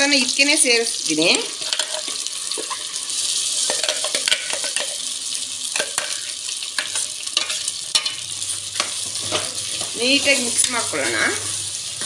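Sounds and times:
oil sizzling: 0.0 - 12.0
spatula clicking and scraping: 6.8 - 11.1.

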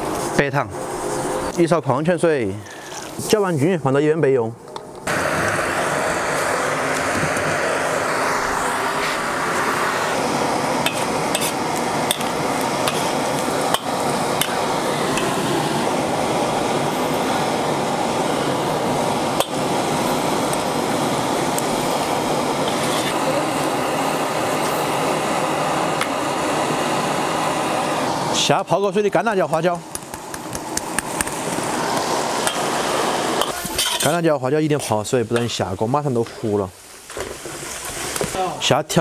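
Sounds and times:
oil sizzling in a wok: 5.1 - 28.3, 30.2 - 34.2.

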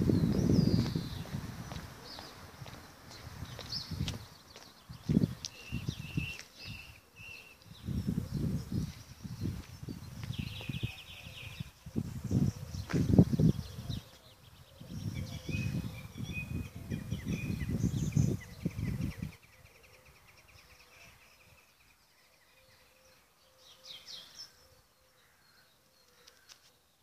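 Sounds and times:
wind buffeting microphone: 0.0 - 19.6
small birds singing: 0.0 - 27.0.

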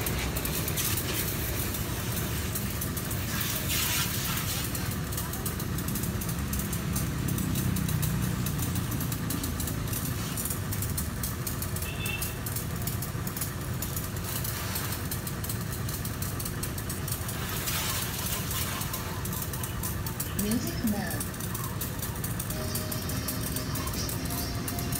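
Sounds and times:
water jet spraying: 0.0 - 5.5, 17.0 - 24.9
motor rumbling: 0.0 - 24.9.

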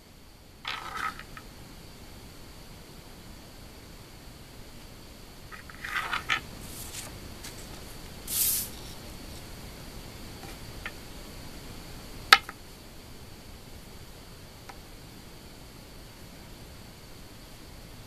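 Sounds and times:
brushing past microphone: 6.6 - 9.4.

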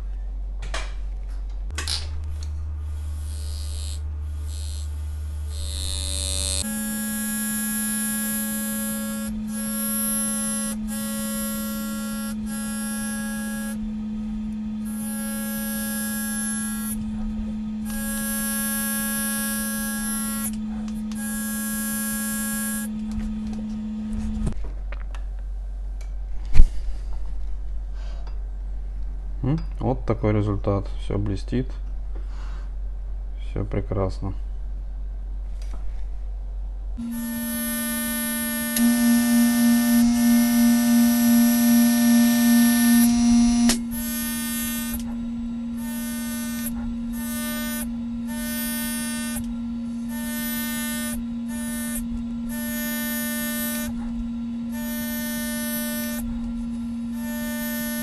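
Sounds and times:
steady electric hum: 0.0 - 58.0
engraving handpiece buzzing: 2.2 - 24.6, 37.0 - 58.0.

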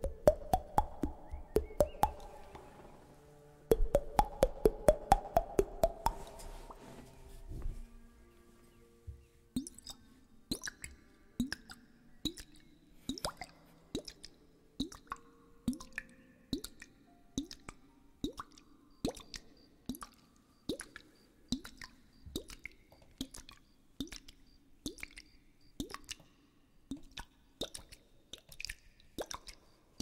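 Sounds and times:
liquid plops: 0.0 - 2.6, 3.7 - 6.4.

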